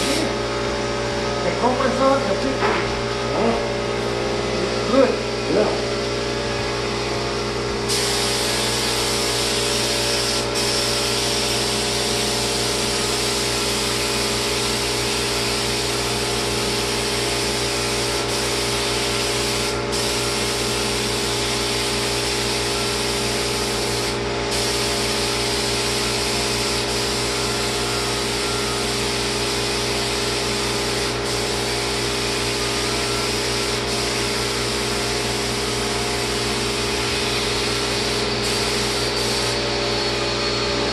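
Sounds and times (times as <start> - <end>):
spray gun hissing: 0.0 - 0.4, 7.8 - 39.6
steady machine hum: 0.0 - 40.9.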